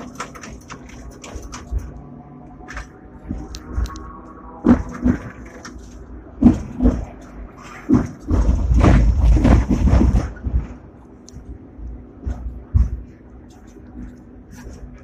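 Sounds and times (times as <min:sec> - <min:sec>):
tram rumbling and rattling: 0:00.0 - 0:15.0
tram wheels knocking over rails: 0:04.6 - 0:10.6.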